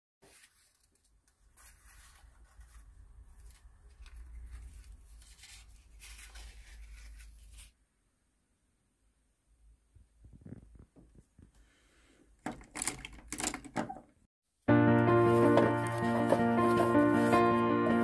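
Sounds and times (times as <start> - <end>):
card tiles rustling on wood: 0.2 - 7.8, 15.2 - 18.0.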